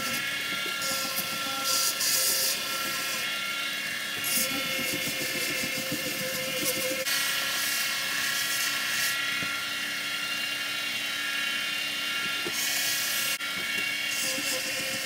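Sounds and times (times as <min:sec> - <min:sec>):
grinding hiss: 0:00.0 - 0:09.2, 0:12.2 - 0:15.0
belt grinder whine: 0:00.0 - 0:15.0.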